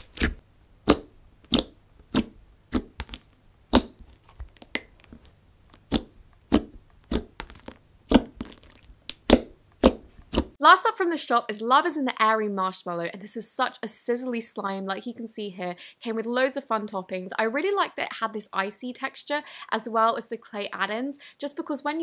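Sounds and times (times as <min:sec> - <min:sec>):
slime popping and clicking: 0:00.0 - 0:10.6.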